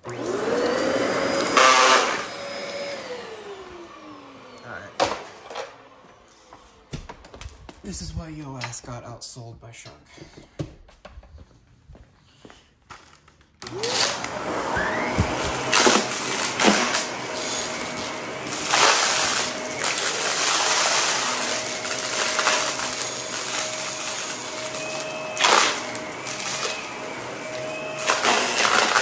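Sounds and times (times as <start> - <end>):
vacuum cleaner motor whine: 0.0 - 6.9, 13.6 - 29.0
brushroll crunching debris: 14.8 - 17.6.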